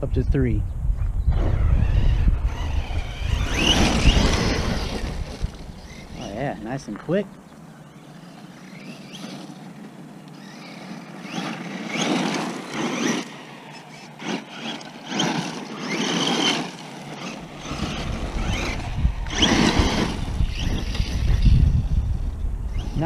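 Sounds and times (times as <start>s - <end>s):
low rumble: 0.0s - 7.4s, 17.4s - 22.9s
rc truck motor whine: 1.0s - 23.0s.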